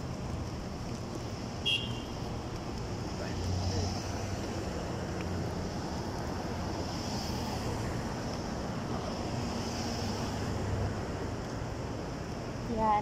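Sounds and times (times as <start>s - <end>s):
street traffic noise: 0.0s - 13.0s.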